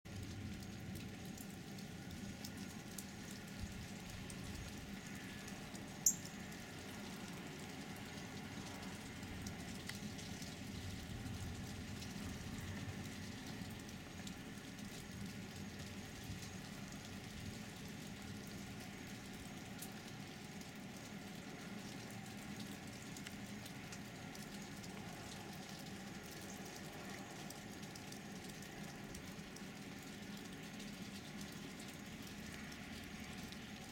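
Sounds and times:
faint outdoor background noise: 0:00.1 - 0:33.9
light ticks: 0:09.4 - 0:10.6, 0:22.6 - 0:29.3
soft ticks: 0:23.2 - 0:25.1.

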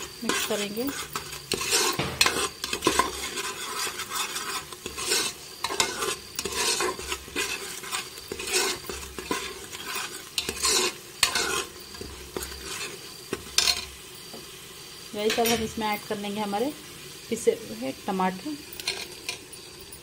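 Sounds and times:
metal spoon scraping pot: 0:00.0 - 0:13.9, 0:18.7 - 0:19.7
paste sizzling in oil: 0:00.0 - 0:20.0.

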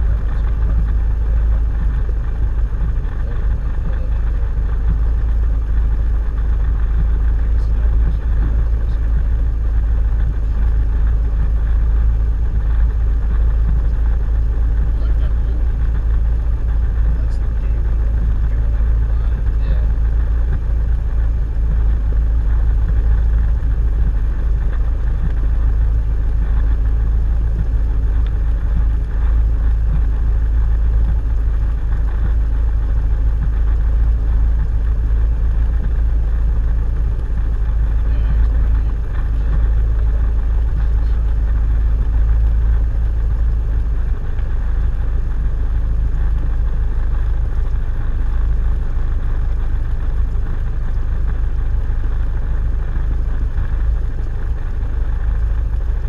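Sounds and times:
airplane engine and propeller idling: 0:00.0 - 0:56.0.

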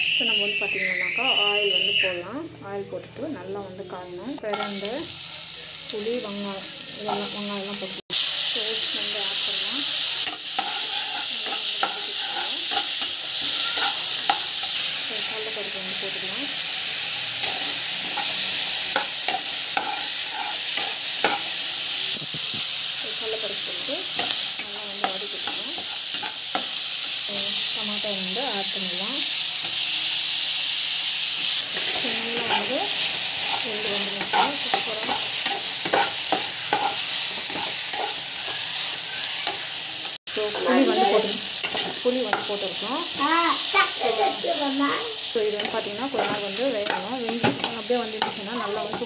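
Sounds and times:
vegetables sizzling in hot oil: 0:00.0 - 0:49.0
metal spatula scraping pan: 0:04.5 - 0:04.9, 0:10.2 - 0:15.8, 0:17.2 - 0:21.7, 0:31.6 - 0:39.7, 0:40.4 - 0:42.6, 0:45.5 - 0:49.0.

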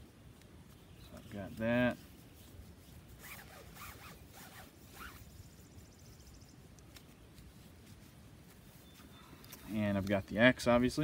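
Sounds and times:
cord rasping zips: 0:01.8 - 0:05.5.

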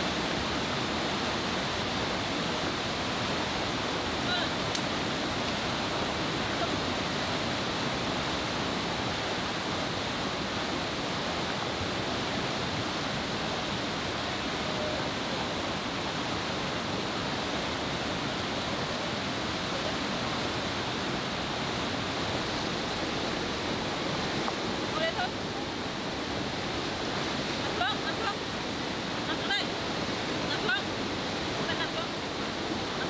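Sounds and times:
river rushing through rapids: 0:00.0 - 0:33.0.

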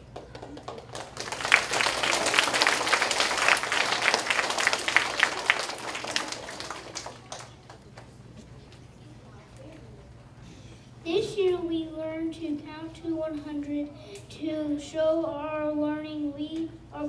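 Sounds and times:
children applauding: 0:00.0 - 0:08.0.

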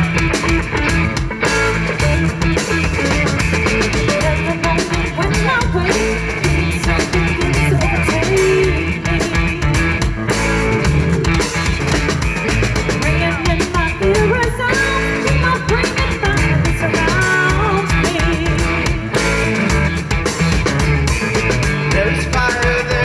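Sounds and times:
drum kit: 0:00.0 - 0:23.0
electric guitar: 0:00.0 - 0:23.0
woman singing: 0:01.9 - 0:10.1, 0:13.0 - 0:19.2.

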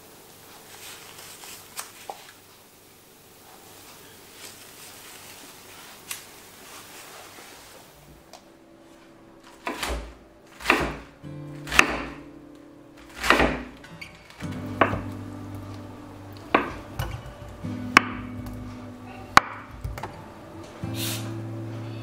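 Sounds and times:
knife cutting cabbage on board: 0:09.6 - 0:12.2, 0:13.0 - 0:13.8.

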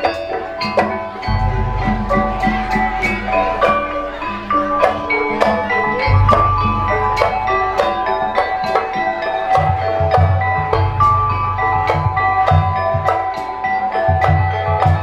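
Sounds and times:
metal mallet instruments ringing: 0:00.0 - 0:15.0
sharp percussion strokes: 0:00.0 - 0:15.0
deep sustained bass notes: 0:01.3 - 0:09.4, 0:10.7 - 0:12.5.

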